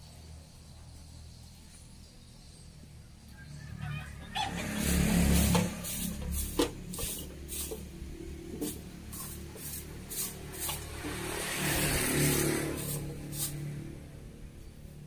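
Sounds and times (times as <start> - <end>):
broom sweeping on ground: 4.6 - 14.2.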